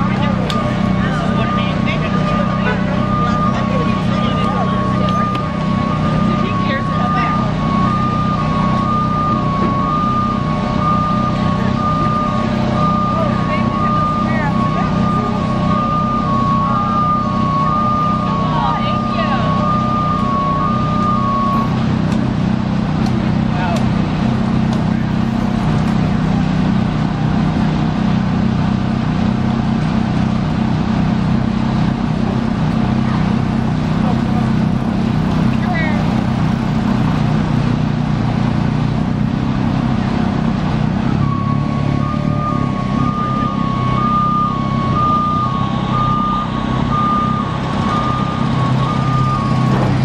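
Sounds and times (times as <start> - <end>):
two-tone electronic warning beeper: 0.0 - 22.1, 41.1 - 50.0
low engine drone: 0.0 - 50.0.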